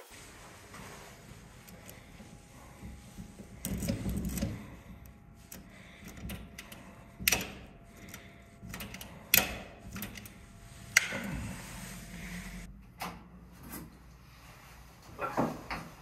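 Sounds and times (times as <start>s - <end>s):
key rattling and scraping in lock: 1.2s - 11.4s
sharp metallic clicks: 5.4s - 11.2s.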